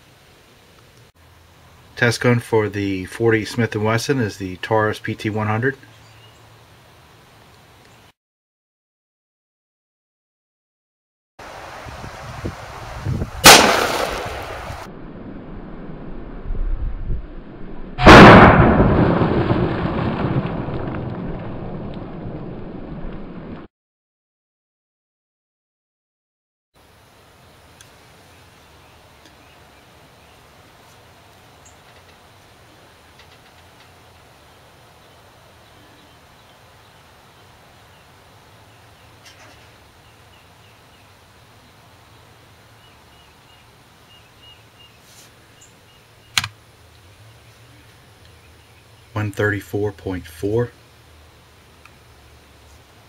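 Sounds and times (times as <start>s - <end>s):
low steady hum and hiss: 0.0s - 8.1s, 26.8s - 53.0s
pistol shot: 13.4s - 14.7s, 18.0s - 18.9s.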